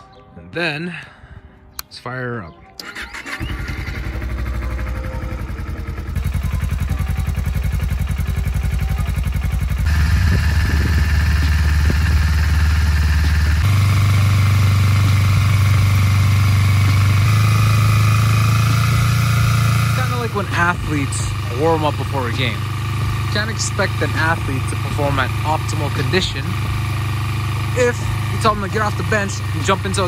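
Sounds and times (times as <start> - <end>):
motorcycle engine idling: 2.9 - 30.0.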